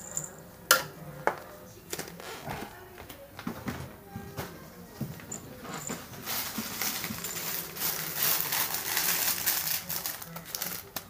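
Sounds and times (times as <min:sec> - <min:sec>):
close rustling and crinkling: 0:05.2 - 0:11.0.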